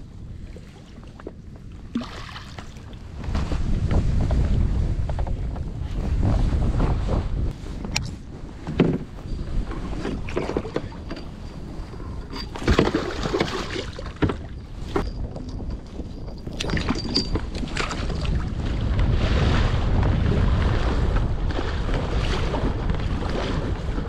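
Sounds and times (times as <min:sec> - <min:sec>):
water on hull: 0:00.0 - 0:24.0
wind on microphone: 0:00.0 - 0:24.0
fishing gear knocks and rustles: 0:07.8 - 0:18.2.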